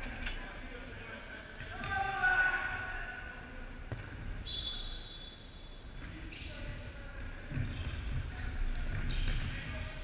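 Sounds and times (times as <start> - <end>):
shoe squeak: 3.4 - 10.0.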